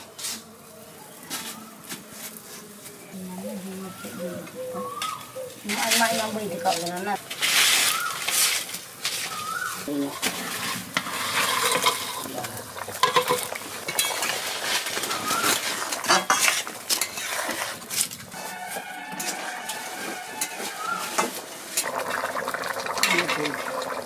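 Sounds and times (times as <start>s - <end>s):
curry sizzling: 0.0s - 24.0s.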